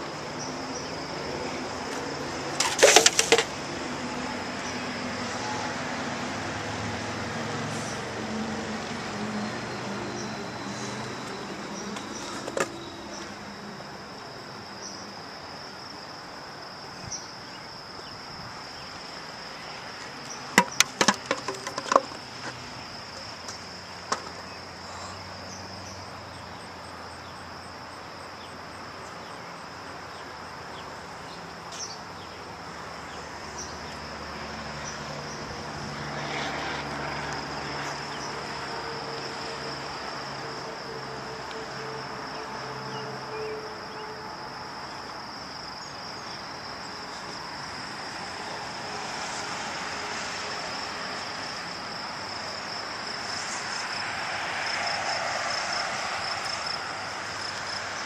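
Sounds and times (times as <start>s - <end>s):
insects trilling: 0.0s - 58.0s
vehicle passing: 3.3s - 12.2s, 34.1s - 43.0s, 47.9s - 51.6s, 53.0s - 58.0s.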